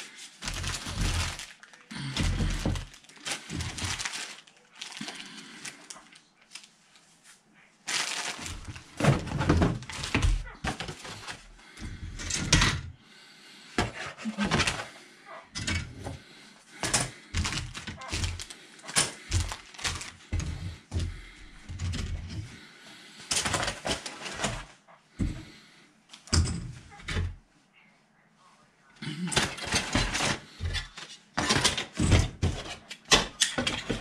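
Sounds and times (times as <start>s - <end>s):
plastic bag crinkling: 0.0s - 7.1s, 7.8s - 11.5s, 17.3s - 20.6s.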